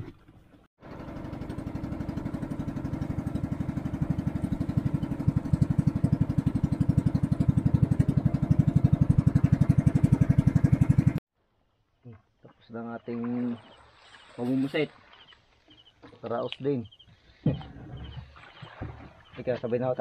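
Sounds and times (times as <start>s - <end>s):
boat engine puttering: 0.0s - 11.2s, 17.5s - 20.0s.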